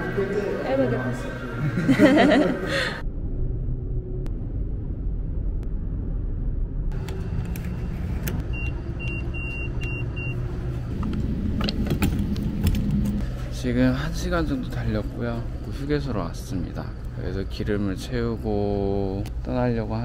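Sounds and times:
car road and engine rumble: 0:04.0 - 0:19.9.

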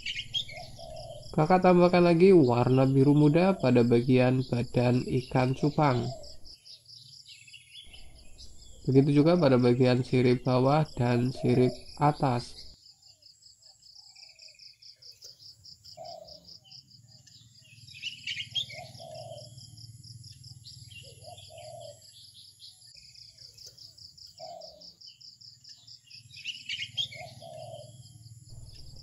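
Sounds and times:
birds twittering faintly: 0:00.0 - 0:29.0
cricket chirping: 0:00.0 - 0:29.0
low repeating call: 0:08.4 - 0:12.7
steady low hum: 0:28.5 - 0:29.0.

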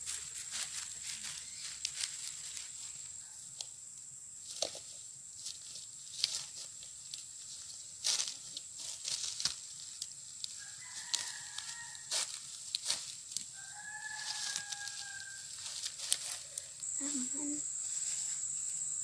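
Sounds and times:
fern stems crackling and rustling: 0:00.0 - 0:18.9
rooster crowing: 0:10.6 - 0:12.4, 0:13.5 - 0:15.8.

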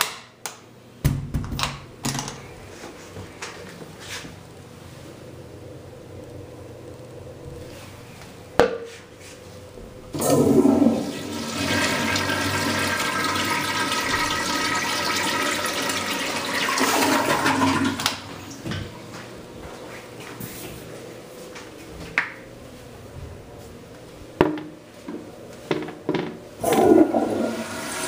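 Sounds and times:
toilet flushing: 0:10.1 - 0:18.7, 0:26.6 - 0:28.0.

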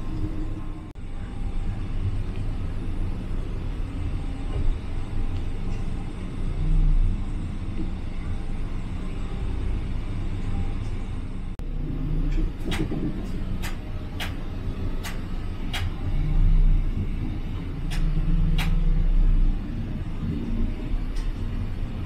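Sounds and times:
coach engine rumbling: 0:00.0 - 0:22.0
sharp clicks: 0:15.0 - 0:16.0, 0:17.9 - 0:18.8.

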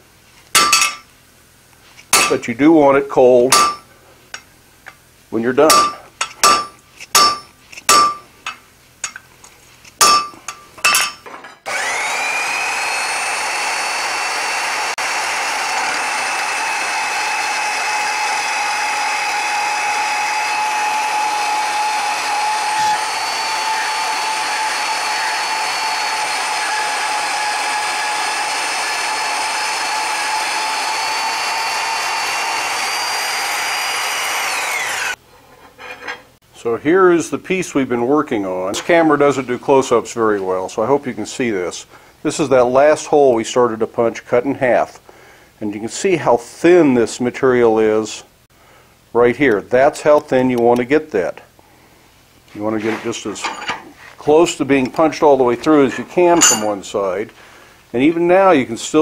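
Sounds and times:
hammer blows on anvil: 0:00.6 - 0:01.1, 0:02.2 - 0:02.5, 0:03.5 - 0:04.5, 0:05.6 - 0:09.2, 0:10.0 - 0:11.4, 0:56.4 - 0:56.8.

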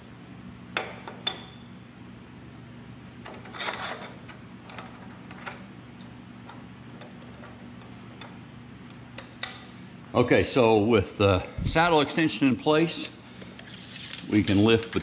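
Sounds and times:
steady low hum: 0:00.0 - 0:15.0
metal sliding scrape: 0:13.7 - 0:14.2.

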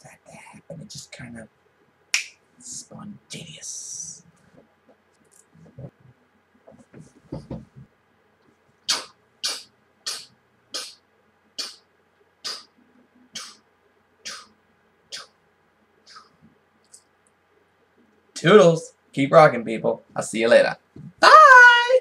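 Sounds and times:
faint soft movement sounds: 0:02.5 - 0:08.8.

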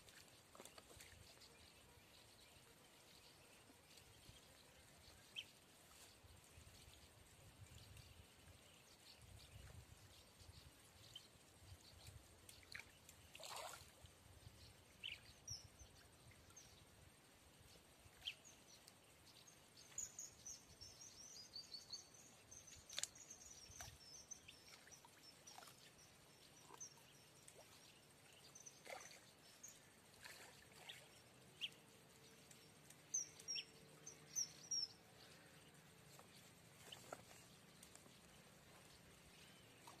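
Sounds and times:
faint clicks: 0:22.8 - 0:24.0.

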